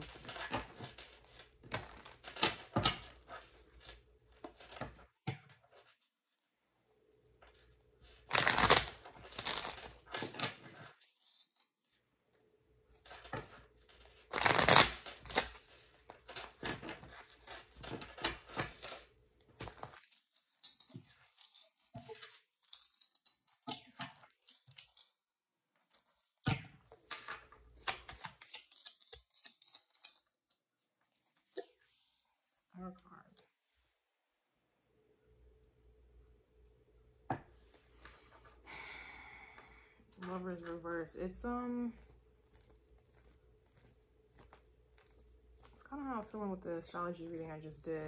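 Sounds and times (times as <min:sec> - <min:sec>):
cards being shuffled: 0:07.5 - 0:11.6, 0:13.0 - 0:25.1, 0:25.9 - 0:31.8, 0:41.4 - 0:47.8.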